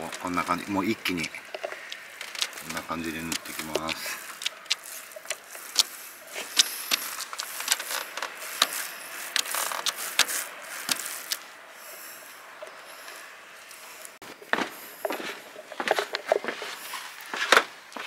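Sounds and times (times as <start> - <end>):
roller frame clicks: 0.0 - 5.9, 6.6 - 11.4
paint roller hiss: 2.3 - 14.2.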